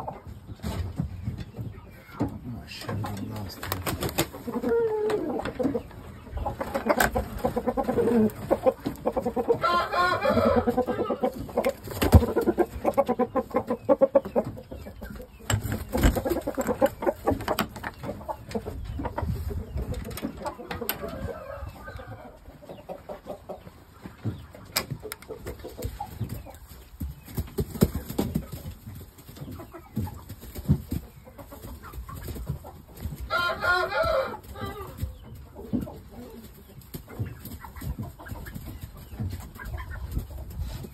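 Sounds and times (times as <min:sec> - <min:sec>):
chickens clucking: 0:00.0 - 0:40.9
rooster crowing: 0:09.6 - 0:11.0, 0:33.3 - 0:34.9
knocks and rustles: 0:11.5 - 0:12.8, 0:15.4 - 0:18.6.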